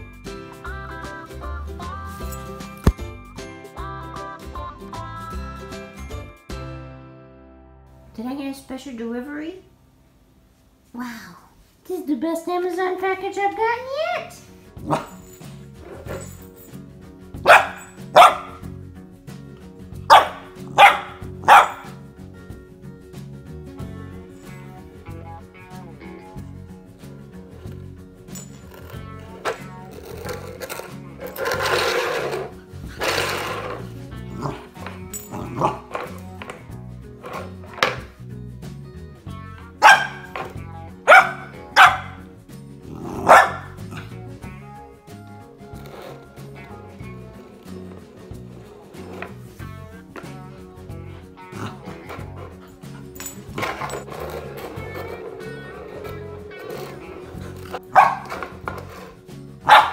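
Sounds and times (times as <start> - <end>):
background music: 0.0 - 10.2, 11.9 - 59.9
puppy barking: 14.8 - 15.2, 17.4 - 18.6, 20.1 - 22.0, 34.4 - 36.0, 39.6 - 42.3, 43.0 - 44.2, 56.5 - 59.9.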